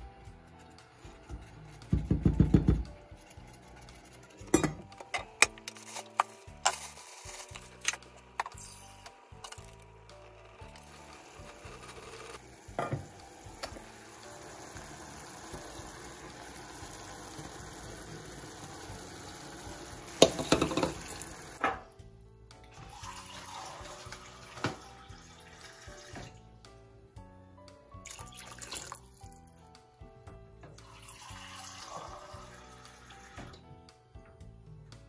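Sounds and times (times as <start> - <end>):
pot simmering and bubbling: 0.2 - 4.9, 9.6 - 21.7
metal lid clattering: 4.4 - 6.9.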